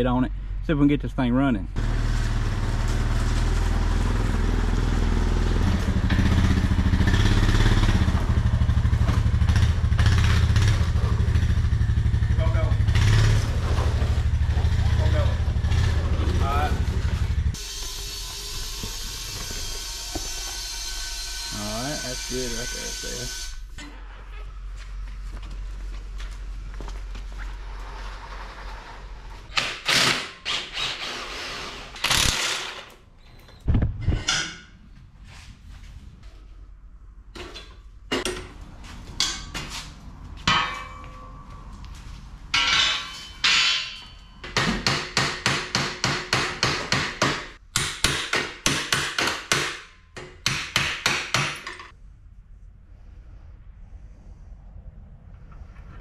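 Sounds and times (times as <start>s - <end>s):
rapid hammer strikes: 44.5s - 51.7s.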